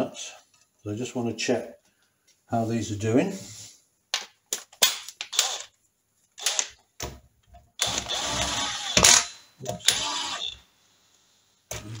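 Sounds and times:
cordless drill whirring: 5.3 - 5.7, 6.4 - 6.7, 7.8 - 10.6.

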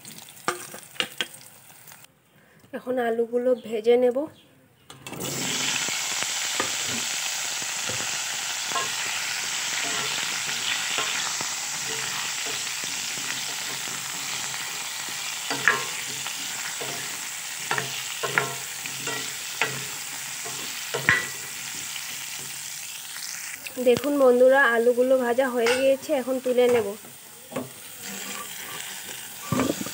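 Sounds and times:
potatoes sizzling in oil: 0.0 - 2.1, 5.2 - 29.9
spatula scraping pan: 7.9 - 22.6, 25.6 - 29.9.

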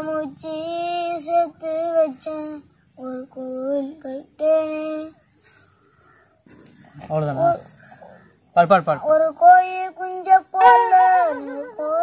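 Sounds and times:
child singing unaccompanied: 0.0 - 5.7, 7.3 - 8.0, 8.8 - 12.0.

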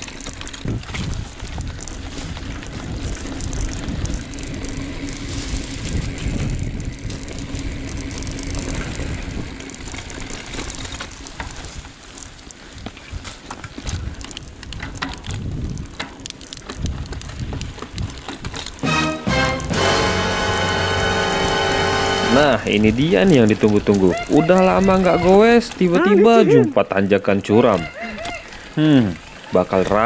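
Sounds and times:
bike rattling and knocking: 0.0 - 18.8, 21.9 - 26.2, 26.9 - 30.0
wind buffeting microphone: 0.0 - 18.8, 22.2 - 26.8
bike tyre rumble: 0.0 - 30.0.

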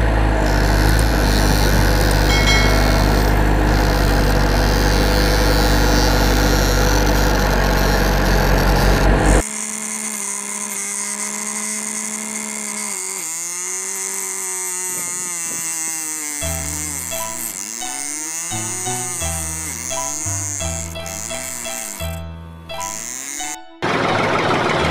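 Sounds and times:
motor hum: 0.0 - 24.9
high-pitched whine: 2.2 - 4.4.

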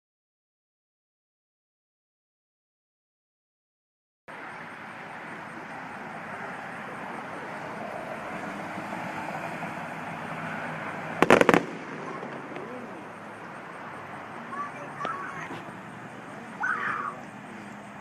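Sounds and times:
outdoor hubbub: 4.3 - 18.0
firework shell bursting bangs: 11.2 - 13.1.

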